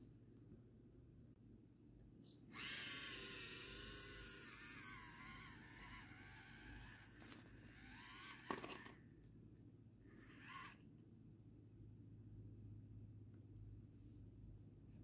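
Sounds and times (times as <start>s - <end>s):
rc car motor whining: 2.5s - 9.0s, 10.1s - 10.8s.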